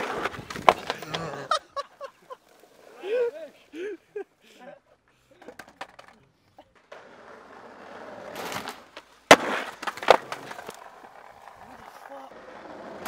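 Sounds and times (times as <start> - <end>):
skateboard grinding on rail: 0.0 - 1.6, 6.8 - 13.0
skateboard wheels rolling on asphalt: 0.0 - 3.8, 5.0 - 13.0
skateboard landing smack: 8.3 - 10.8.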